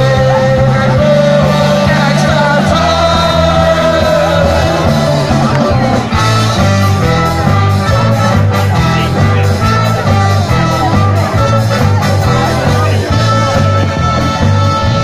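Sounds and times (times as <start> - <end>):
person singing: 0.0 - 6.6
live rock band playing: 0.0 - 15.0
saxophone and trumpet: 0.0 - 15.0.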